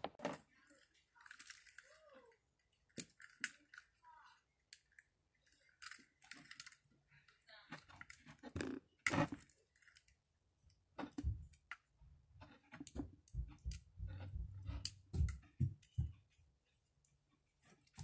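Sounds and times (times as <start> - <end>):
cord rustling: 4.7 - 7.0.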